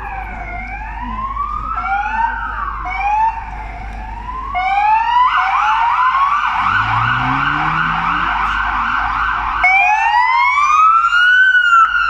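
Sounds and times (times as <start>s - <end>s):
police siren wailing and yelping: 4.5s - 12.0s
vehicle engine rising in pitch: 6.4s - 10.0s.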